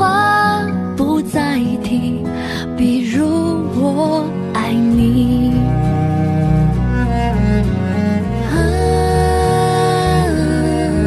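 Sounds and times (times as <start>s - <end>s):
slow sad pop ballad: 0.0s - 11.0s
steady bass line: 5.0s - 11.0s.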